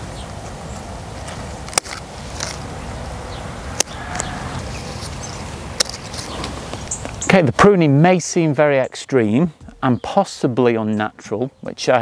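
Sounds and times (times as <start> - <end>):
steady outdoor hiss: 0.0 - 12.0.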